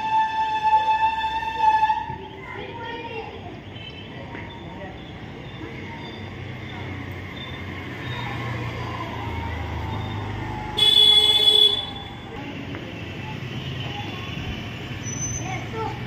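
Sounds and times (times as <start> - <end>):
traffic rumble: 0.0 - 16.0
vehicle horn toot: 10.8 - 12.2.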